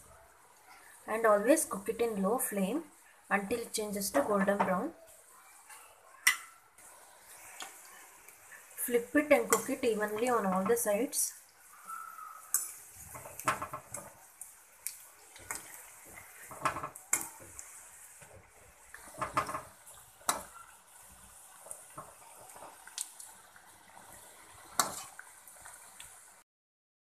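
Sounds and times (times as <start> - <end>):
food sizzling in hot oil: 5.7 - 26.4
spoon clinking and scraping a pan: 24.8 - 25.2.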